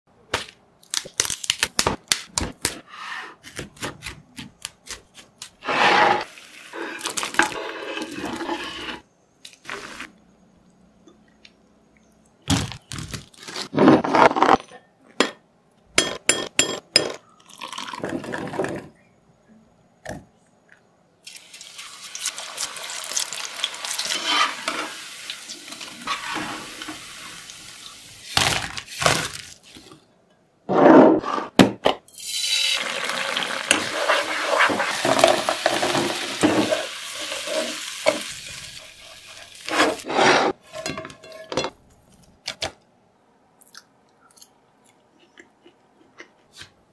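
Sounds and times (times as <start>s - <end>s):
food sizzling in hot oil: 21.3s - 28.3s, 32.1s - 40.1s.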